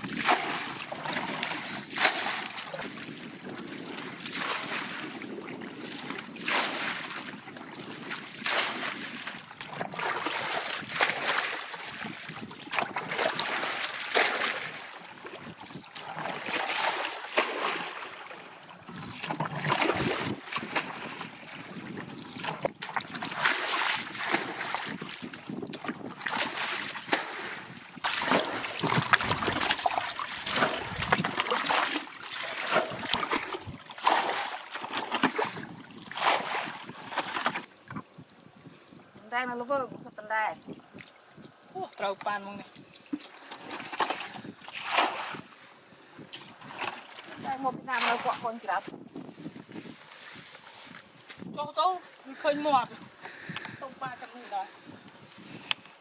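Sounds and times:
water splashing from bucket: 0.0s - 37.7s, 42.0s - 45.5s, 46.4s - 48.9s.

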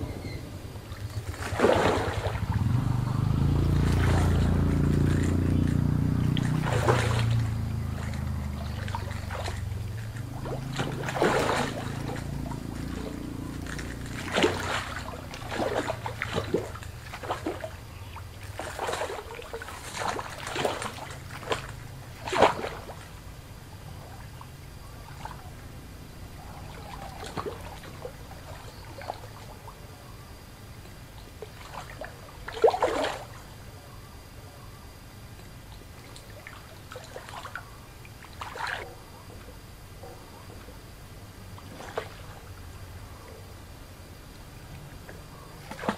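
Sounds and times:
low rumble: 0.0s - 15.2s
water splashing and sloshing: 0.0s - 34.1s, 34.7s - 45.9s.

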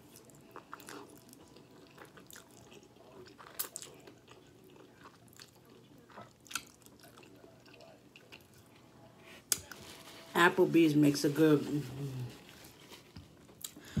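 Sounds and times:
chewing: 0.0s - 8.9s.

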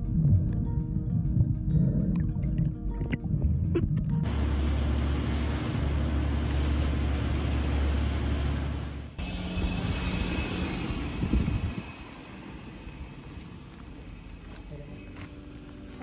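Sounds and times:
water noise: 0.0s - 12.0s
motorboat engine drone: 0.0s - 12.8s
street hum: 0.0s - 16.0s
rushing wind: 9.2s - 13.7s.

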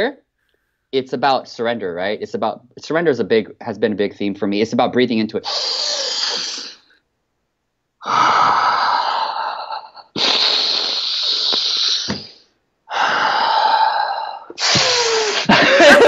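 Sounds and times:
man breathing forcefully: 5.5s - 6.8s, 8.0s - 15.6s.

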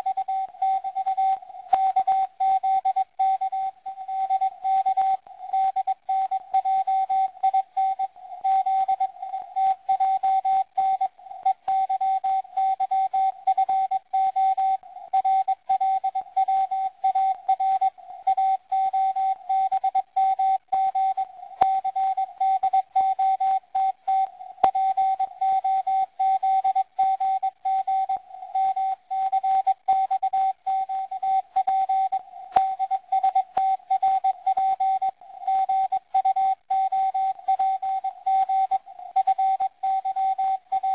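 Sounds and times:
morse code beeps: 15.4s - 40.9s.

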